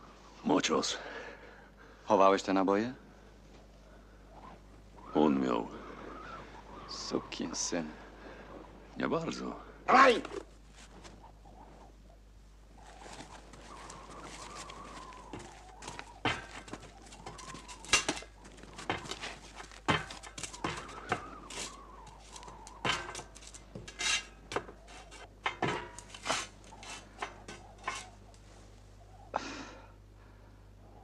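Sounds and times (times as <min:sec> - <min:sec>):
rasping metal clatter: 0:16.2 - 0:28.2
metallic clanks on steel: 0:25.4 - 0:28.2.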